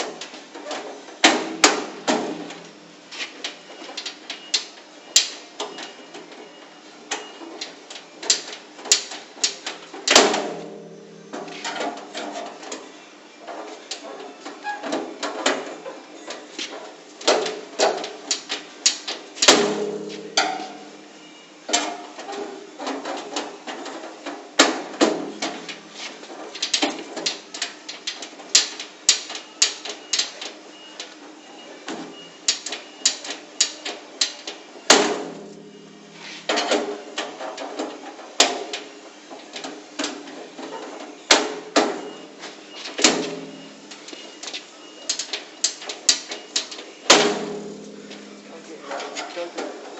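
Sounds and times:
steel box ringing from blows: 0:10.1 - 0:11.6, 0:19.5 - 0:21.0, 0:32.5 - 0:36.5, 0:43.0 - 0:44.4, 0:45.1 - 0:48.6.

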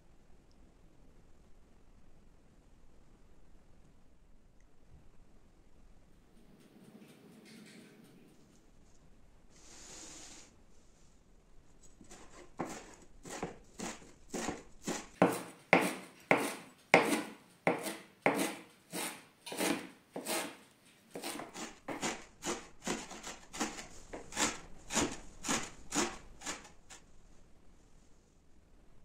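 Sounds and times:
knife chopping herbs on board: 0:12.0 - 0:26.8.

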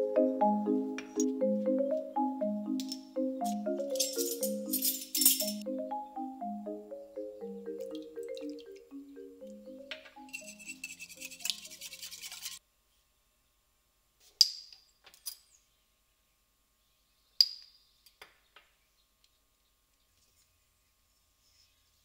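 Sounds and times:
soft mallet instrument music: 0:00.0 - 0:11.8
metal spoons tapping: 0:03.9 - 0:05.6, 0:10.0 - 0:12.0
glass lid clinking: 0:10.3 - 0:11.6
whisk rattling in glass bowl: 0:10.3 - 0:12.6.

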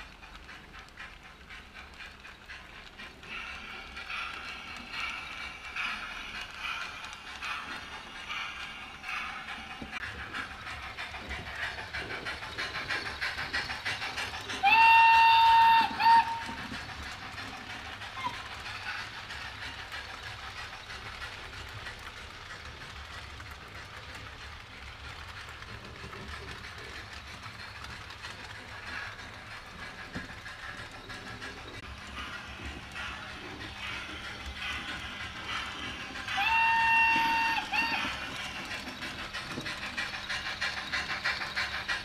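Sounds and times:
model train rolling on track: 0:00.0 - 0:42.0
steam locomotive exhaust chuffs: 0:00.0 - 0:42.0
steam whistle blast: 0:14.6 - 0:16.6, 0:36.3 - 0:38.1.

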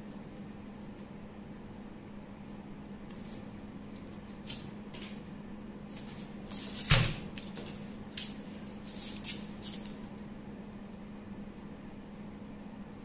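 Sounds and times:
steady low hum: 0:00.0 - 0:13.0
paper rustling and scraping: 0:07.5 - 0:10.1.

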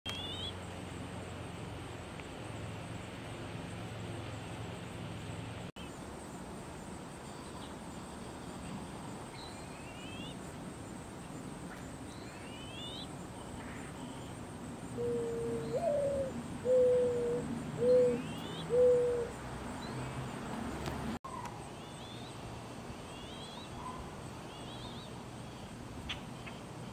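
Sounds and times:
small birds chirping: 0:00.1 - 0:01.4, 0:07.1 - 0:10.4, 0:11.2 - 0:26.9
dove cooing: 0:15.0 - 0:19.5.

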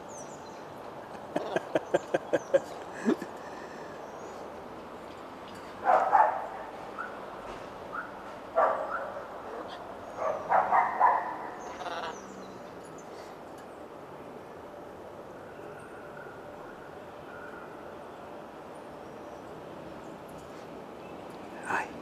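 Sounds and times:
macaws calling: 0:11.6 - 0:12.4.

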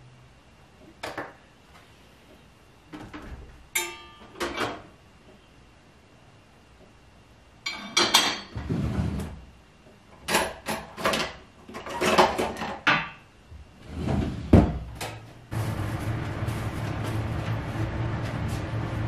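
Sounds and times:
pans and utensils clattering: 0:07.7 - 0:08.6, 0:10.3 - 0:13.1.

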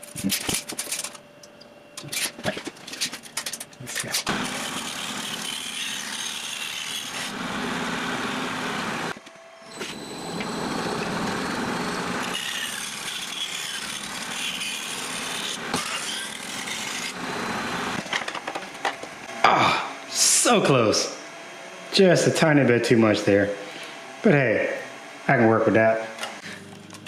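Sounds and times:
cutting tool trimming: 0:03.8 - 0:18.1.

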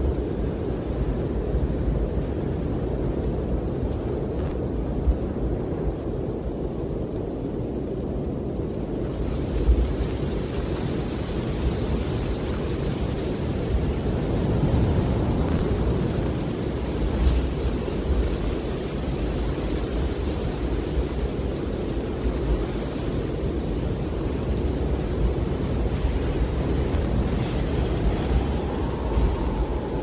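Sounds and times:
strong wind blowing: 0:00.0 - 0:30.0.

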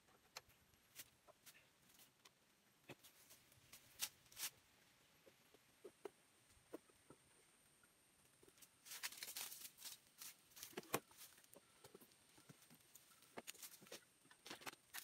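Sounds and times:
dry leaves crackling underfoot: 0:08.6 - 0:11.5.

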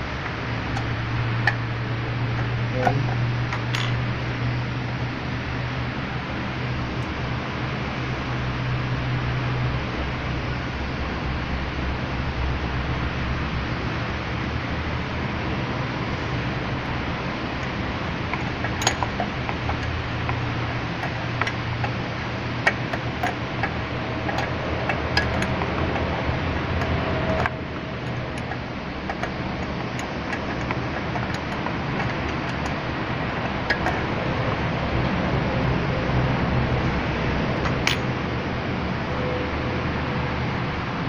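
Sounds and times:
steady background hum: 0:00.0 - 0:41.0
wrench clicking on metal fittings: 0:17.6 - 0:34.1, 0:37.8 - 0:38.0.

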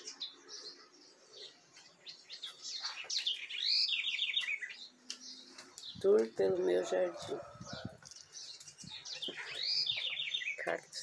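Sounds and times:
songbirds chirping: 0:00.0 - 0:11.0.

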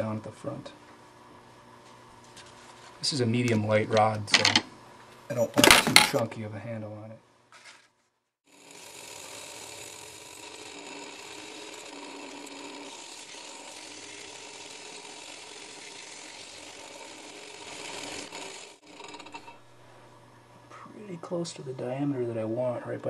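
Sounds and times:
sandpaper rubbing spinning cork: 0:08.5 - 0:19.6
lathe motor hum: 0:08.5 - 0:20.3.

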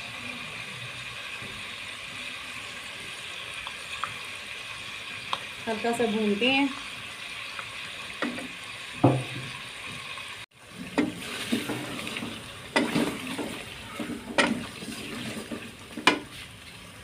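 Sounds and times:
chicken sizzling: 0:00.0 - 0:17.0
ladle scraping metal pot: 0:10.8 - 0:16.5.

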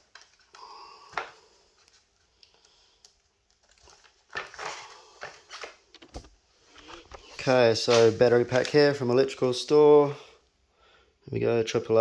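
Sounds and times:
rustling and knocking: 0:04.3 - 0:07.2.

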